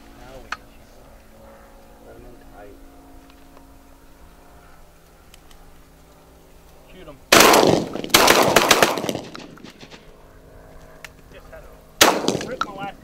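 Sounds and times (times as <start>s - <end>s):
shotgun blasts: 7.3s - 10.1s, 12.0s - 12.9s.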